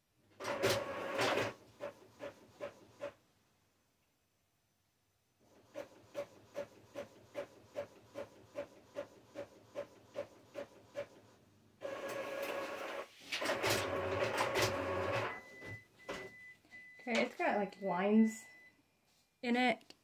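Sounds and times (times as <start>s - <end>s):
printer whirring with hum: 0.4s - 3.2s, 5.4s - 17.0s.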